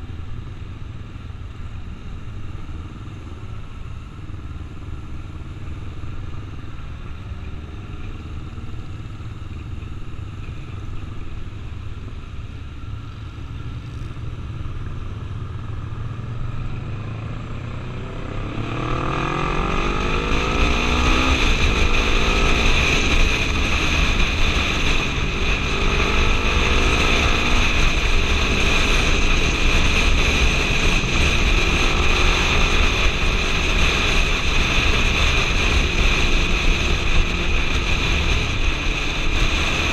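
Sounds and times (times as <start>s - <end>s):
motorcycle engine accelerating: 0.0s - 39.9s
wind rushing over microphone: 10.2s - 39.9s.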